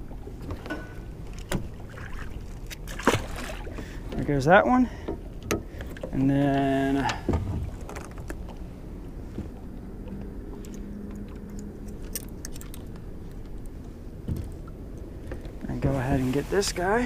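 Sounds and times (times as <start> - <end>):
wind and water rumble: 0.0 - 17.0.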